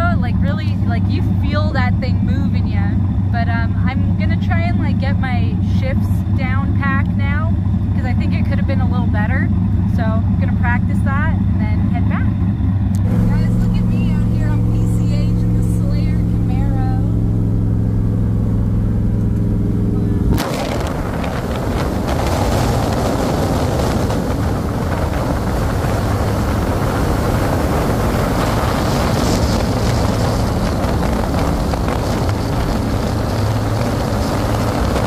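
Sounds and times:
car engine drone: 0.0s - 35.0s
wind and road noise: 0.0s - 35.0s.

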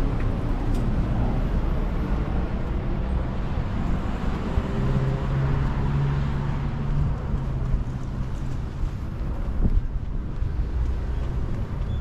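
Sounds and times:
road rumble: 0.0s - 12.0s.

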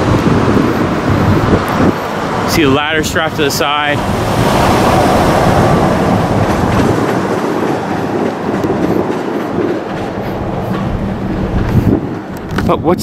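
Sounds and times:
vehicle rumbling past: 0.0s - 8.9s.

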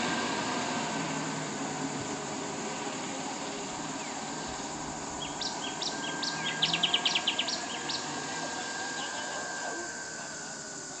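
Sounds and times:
outdoor background hiss: 0.0s - 11.0s
small bird chirping: 5.2s - 9.8s.

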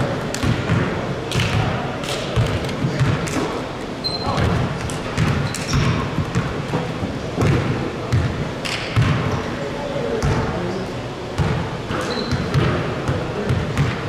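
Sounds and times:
players' voices: 0.0s - 14.0s
basketball bouncing on gym floor: 0.3s - 1.8s, 2.4s - 3.4s, 4.1s - 9.4s, 11.4s - 14.0s
shoe squeak: 4.0s - 4.5s, 5.4s - 6.1s, 11.9s - 12.5s.

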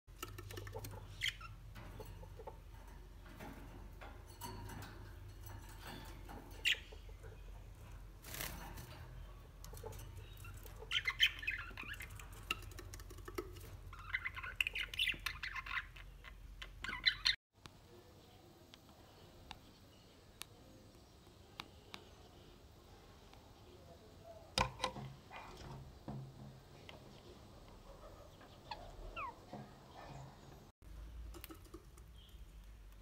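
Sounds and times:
budgerigars chirping: 10.2s - 12.2s, 13.9s - 17.4s, 28.2s - 30.0s.

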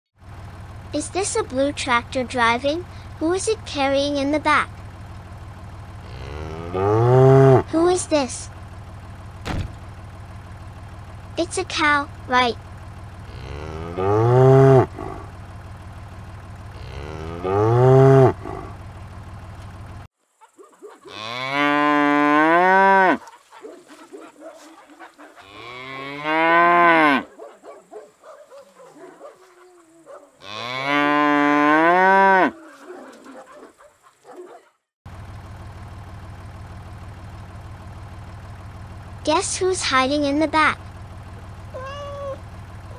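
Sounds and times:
steady low hum: 0.3s - 20.5s
cow mooing: 6.0s - 7.7s, 13.2s - 15.4s, 16.7s - 18.8s, 21.1s - 23.3s, 25.4s - 27.4s, 30.4s - 33.3s.

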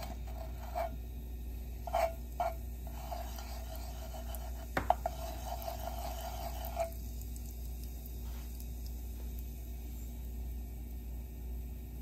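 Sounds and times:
spoon scraping in hot oil: 0.0s - 9.3s.

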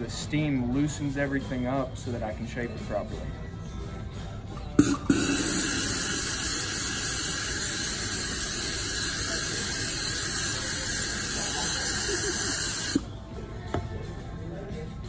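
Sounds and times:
steamer hissing: 4.8s - 13.1s.

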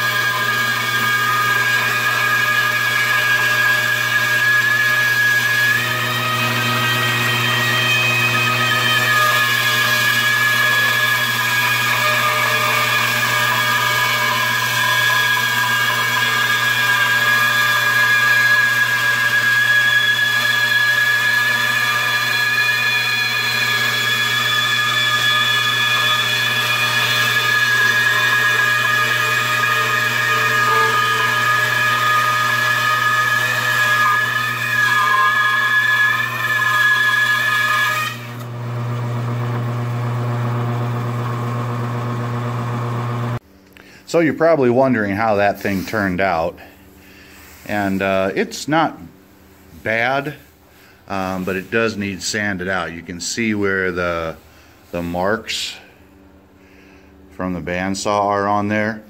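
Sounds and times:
bandsaw blade whining in wood: 0.0s - 43.4s
bandsaw motor hum: 0.0s - 43.4s.

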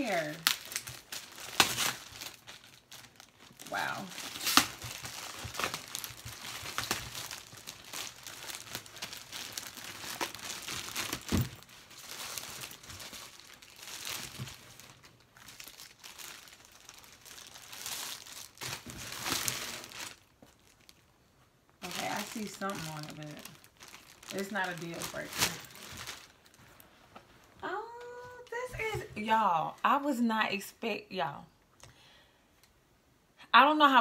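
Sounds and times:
plastic bag crinkling: 0.0s - 21.2s, 21.8s - 26.9s.

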